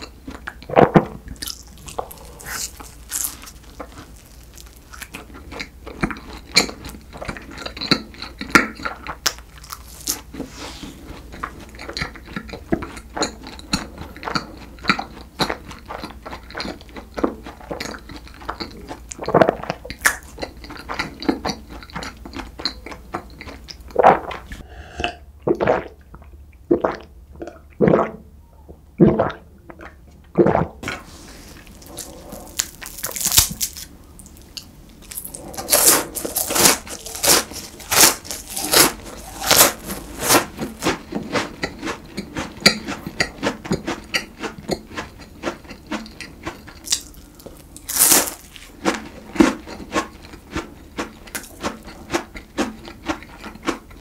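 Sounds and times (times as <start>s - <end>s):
chewing pastry: 0.0s - 24.6s, 30.8s - 54.0s
crunching flaky pastry: 1.4s - 19.0s, 30.9s - 43.0s, 43.8s - 54.0s
gulping a drink: 11.3s - 31.0s.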